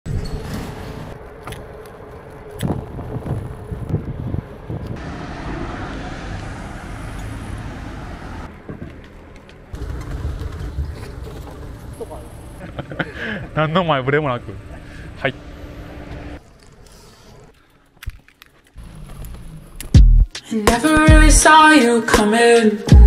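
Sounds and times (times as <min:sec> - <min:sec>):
moving bicycle: 0:00.1 - 0:05.0, 0:08.7 - 0:13.4, 0:14.1 - 0:20.0
street traffic: 0:00.1 - 0:20.2.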